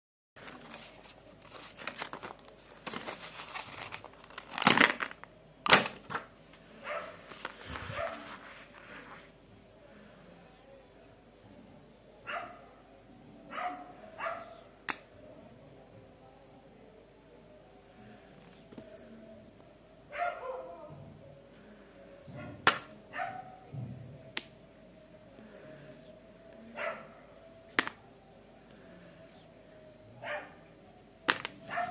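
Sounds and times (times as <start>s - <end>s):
plastic bag crinkling and tearing: 0.4s - 6.2s
plastic rustles: 0.4s - 6.2s, 7.1s - 9.3s.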